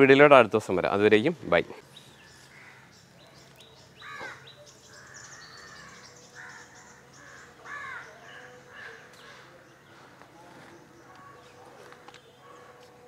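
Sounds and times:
small birds chirping: 0:00.8 - 0:13.0
crow cawing: 0:02.5 - 0:03.0, 0:04.0 - 0:09.5.

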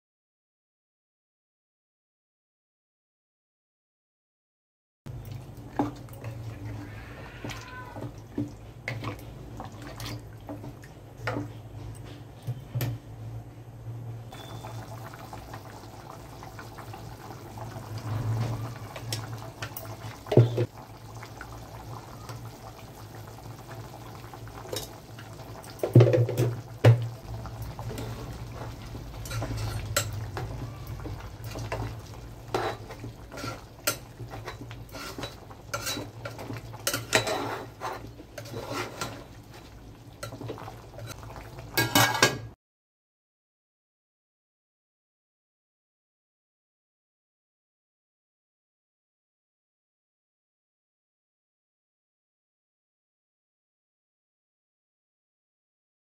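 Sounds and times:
metal spoon stirring in a pot: 0:27.2 - 0:41.2
spoon clinking against pot: 0:29.2 - 0:31.9, 0:32.5 - 0:39.2, 0:41.8 - 0:42.4.

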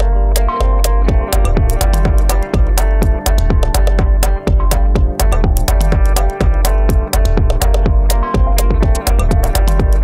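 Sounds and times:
crisp hi-hat ticks: 0:00.0 - 0:10.0
deep techno bass: 0:00.0 - 0:10.0.

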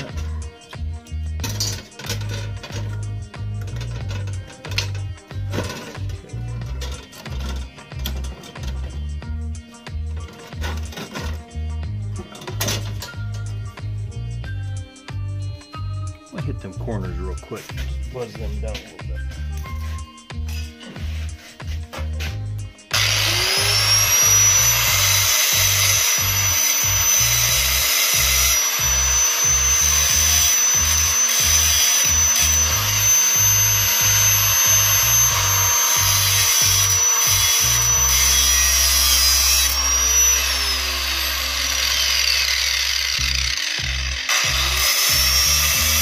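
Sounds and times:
background music with steady beat: 0:00.0 - 0:46.0
electric grinder whining: 0:22.8 - 0:46.0.

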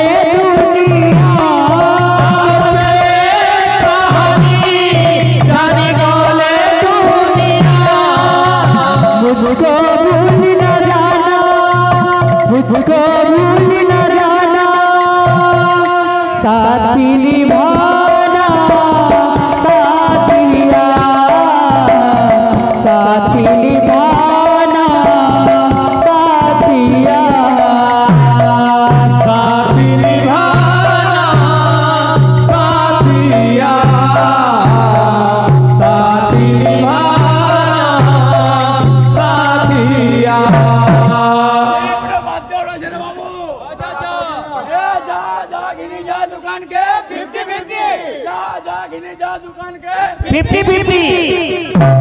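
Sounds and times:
hand-played barrel drums: 0:00.0 - 0:42.6, 0:49.9 - 0:52.0
person singing into microphone: 0:00.0 - 0:52.0
barrel drums beating: 0:50.3 - 0:52.0.

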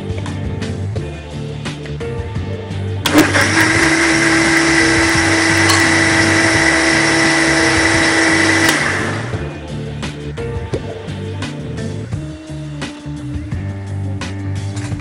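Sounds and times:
mixer grinder motor blending: 0:03.1 - 0:09.5.

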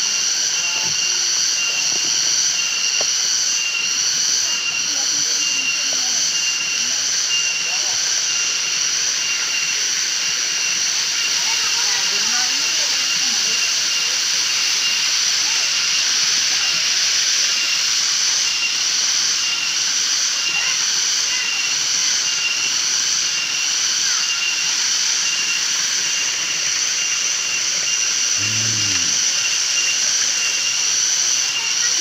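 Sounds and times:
low voice-like sound: 0:28.4 - 0:29.6.

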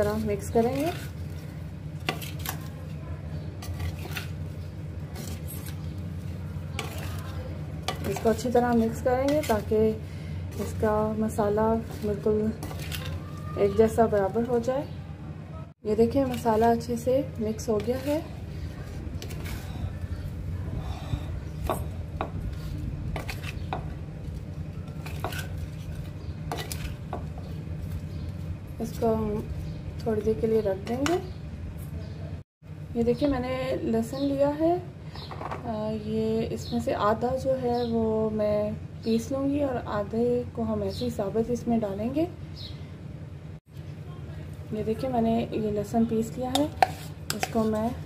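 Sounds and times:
steady low hum: 0:00.0 - 0:13.4, 0:14.1 - 0:37.1
food pieces scraping and rattling: 0:00.0 - 0:14.4, 0:16.0 - 0:19.8, 0:22.5 - 0:29.0.

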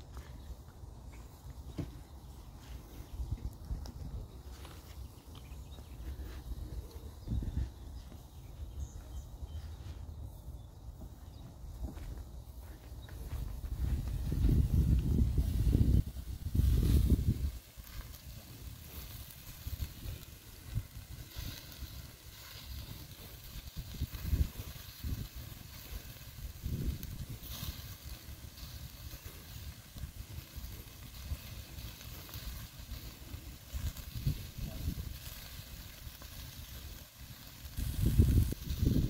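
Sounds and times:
wind buffeting microphone: 0:00.0 - 0:39.0
burger patties sizzling on grill: 0:11.3 - 0:39.0.

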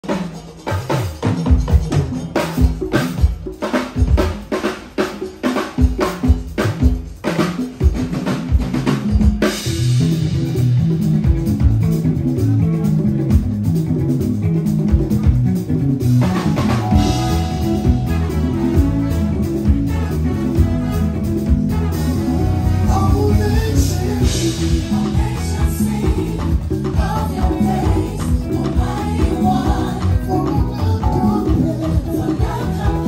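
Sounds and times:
electric bass playing: 0:09.6 - 0:33.0
higher instrument playing: 0:16.2 - 0:25.0
drum kit hits: 0:16.2 - 0:28.1.

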